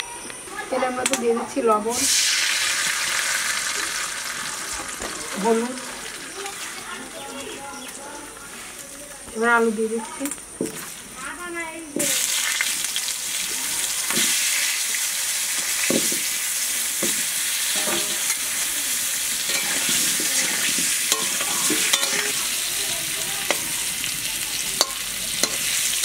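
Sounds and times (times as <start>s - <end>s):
potatoes sizzling in oil: 0.6s - 26.0s
metal spatula scraping pan: 17.7s - 18.4s, 19.4s - 22.5s, 24.8s - 26.0s.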